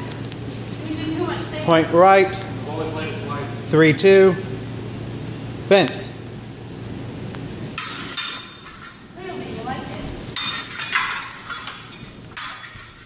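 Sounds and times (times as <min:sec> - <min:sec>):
fencing blades clashing and scraping: 0:07.8 - 0:09.1, 0:10.3 - 0:13.0.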